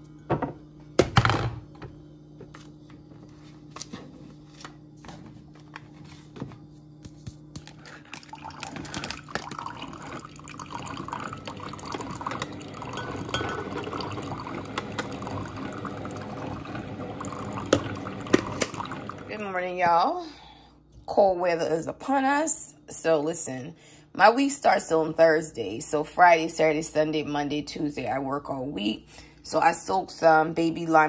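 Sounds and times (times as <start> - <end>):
coffee maker humming: 0.0 - 6.7, 7.6 - 20.6
coffee splashing into mug: 8.0 - 19.3
glass mug knocking on tray: 12.9 - 14.0.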